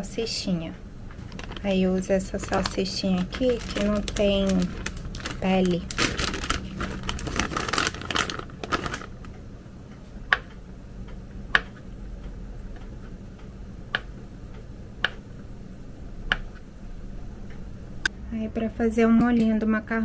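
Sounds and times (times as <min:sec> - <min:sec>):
plastic packet rustling: 0:01.2 - 0:09.3.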